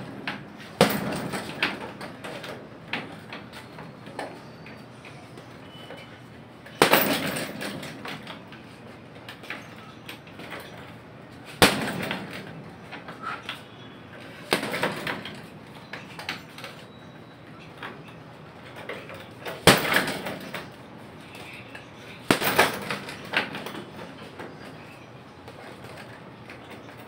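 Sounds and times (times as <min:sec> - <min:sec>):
gloves punching heavy bag: 0:00.6 - 0:02.0, 0:06.8 - 0:08.0, 0:11.5 - 0:12.5, 0:14.4 - 0:15.2, 0:22.2 - 0:23.7.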